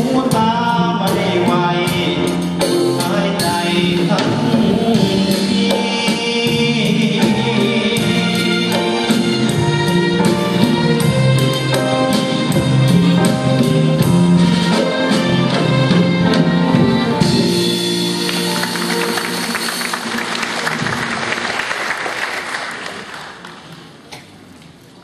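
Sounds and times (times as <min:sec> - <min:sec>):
live band playing: 0:00.0 - 0:24.0
audience applause: 0:18.1 - 0:24.1.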